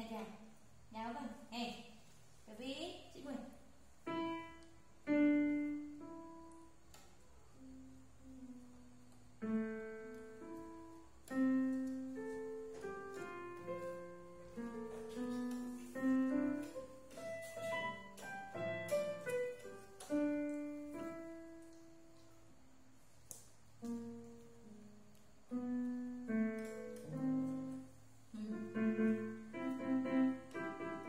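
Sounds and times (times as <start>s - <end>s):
electronic keyboard piano notes: 7.6s - 22.3s, 25.5s - 31.0s.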